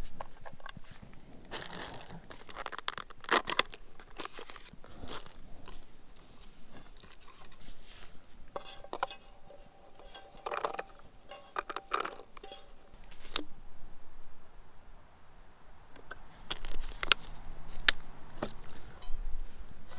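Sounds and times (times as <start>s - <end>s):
onion moved in pan: 6.7s - 13.4s
frying pan clinks and scrapes: 8.6s - 12.9s
pan ringing: 8.6s - 13.0s.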